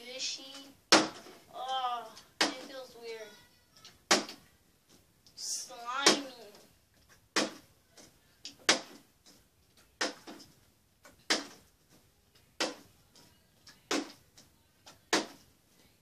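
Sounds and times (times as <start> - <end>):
plastic bottle thudding on wood: 0.9 - 1.4, 4.1 - 4.4, 7.3 - 7.6, 8.6 - 9.0, 15.1 - 15.4.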